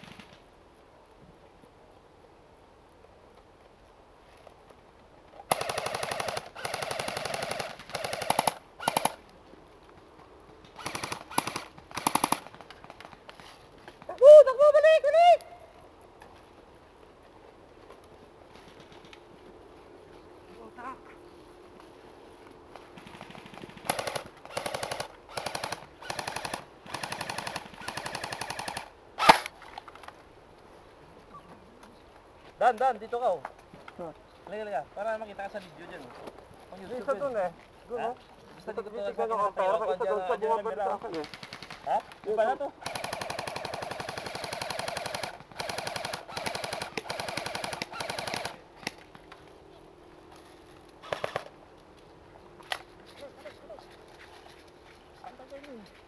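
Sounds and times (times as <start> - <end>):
airsoft rifle bursts: 5.5 - 9.2, 23.0 - 29.5, 42.8 - 49.0.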